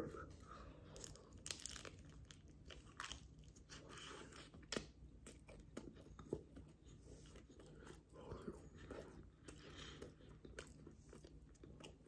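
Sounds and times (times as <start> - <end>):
person chewing pastry: 0.0 - 12.0
crisp crust crunches: 1.0 - 3.8.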